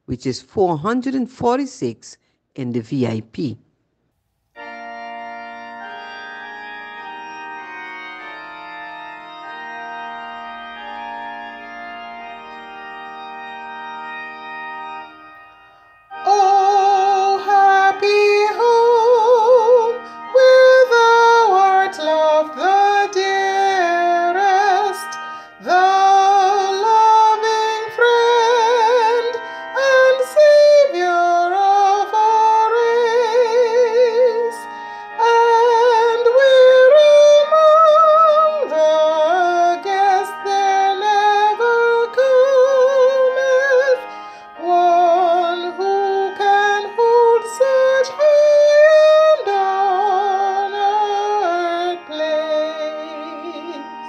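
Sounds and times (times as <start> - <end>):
held accompaniment chords: 4.5 - 54.0
woman singing with vibrato: 16.2 - 54.0.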